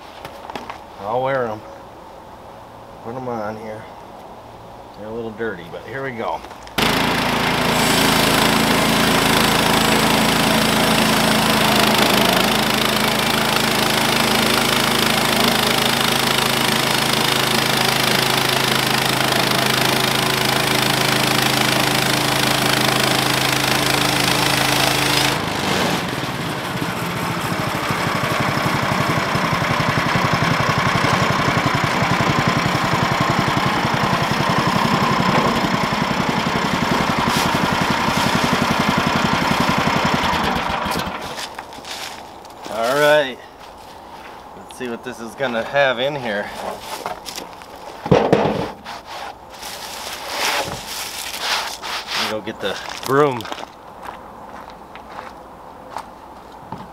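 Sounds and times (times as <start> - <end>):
small gasoline engine running: 6.8 - 42.0.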